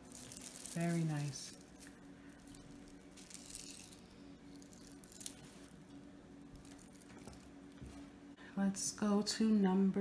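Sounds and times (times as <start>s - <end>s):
beads rustling in hands: 0.0s - 5.8s
faint steady hum: 0.0s - 10.0s.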